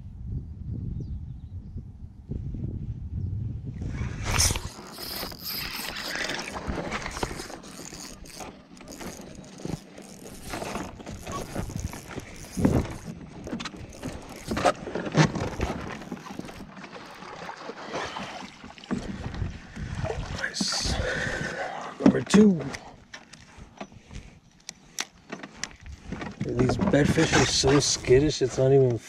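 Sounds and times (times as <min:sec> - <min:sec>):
water splashing: 0:04.2 - 0:21.1
knocks and scrapes against kayak hull: 0:04.2 - 0:29.0.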